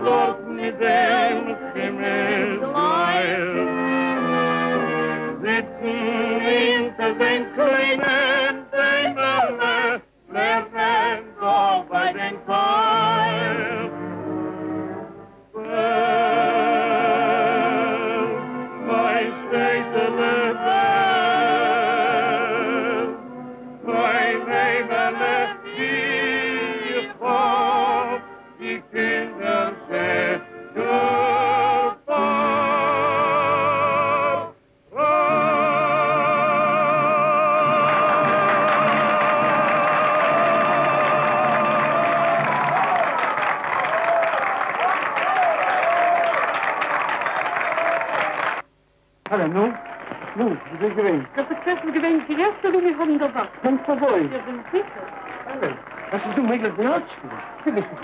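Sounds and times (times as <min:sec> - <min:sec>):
woman singing operatically: 0:00.0 - 0:04.1, 0:04.8 - 0:13.9, 0:15.6 - 0:23.2, 0:23.8 - 0:30.2.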